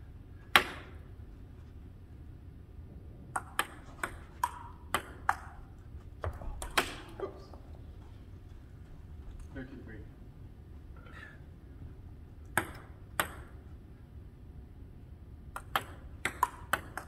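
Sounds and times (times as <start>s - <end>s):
table tennis ball clicks: 3.4s - 5.6s, 12.4s - 13.5s, 15.5s - 17.0s.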